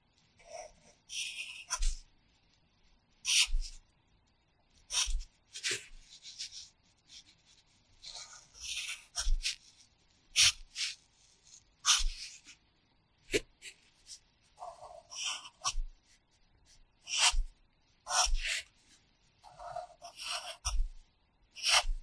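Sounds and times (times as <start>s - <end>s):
pencil scratching on paper: 0.4s - 2.1s, 3.2s - 3.8s, 4.9s - 12.6s, 13.3s - 16.2s, 17.0s - 18.7s, 19.4s - 21.0s, 21.6s - 22.0s.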